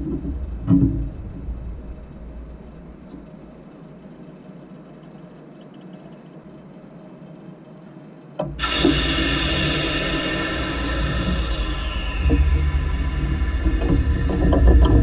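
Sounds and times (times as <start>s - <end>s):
low steady rumble: 0.0s - 15.0s
steam hissing: 8.6s - 15.0s.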